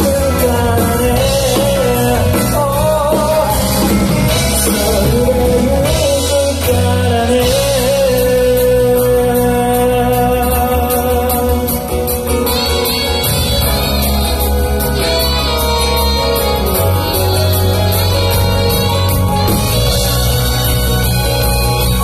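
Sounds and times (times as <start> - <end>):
person singing: 0.0 - 13.8
live band playing pop: 0.0 - 22.0.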